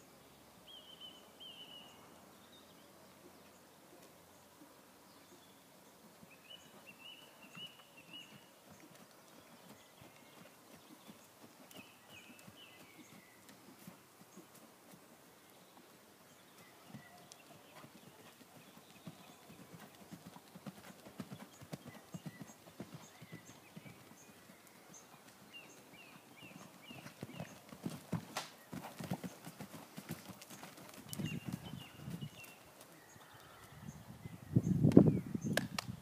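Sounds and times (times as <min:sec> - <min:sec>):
horse hoofbeats on soft ground: 0:06.2 - 0:15.1, 0:16.4 - 0:33.0.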